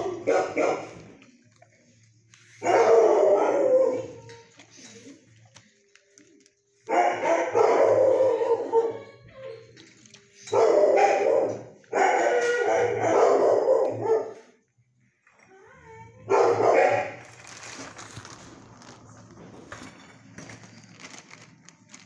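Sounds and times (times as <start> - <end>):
dogs barking: 0.0 - 1.2, 2.6 - 4.3, 6.9 - 9.1, 10.4 - 14.5, 16.3 - 17.4.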